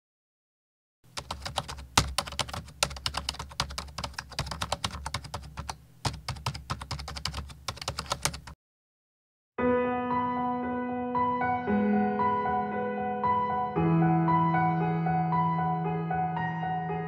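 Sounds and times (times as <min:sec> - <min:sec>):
keyboard typing clicks: 0:01.2 - 0:08.6.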